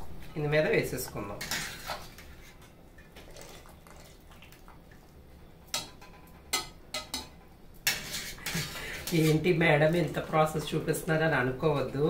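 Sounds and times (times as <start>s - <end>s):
spoon scraping cooking pot: 1.4s - 2.7s, 6.5s - 9.6s.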